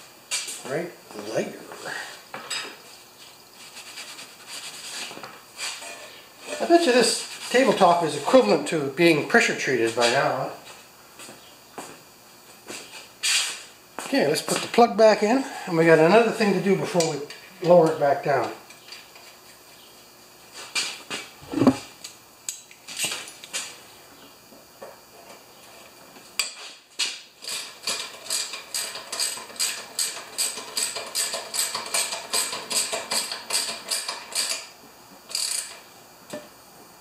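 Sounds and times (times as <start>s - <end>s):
knock: 21.5s - 21.8s
ratchet wrench clicking: 35.3s - 35.8s.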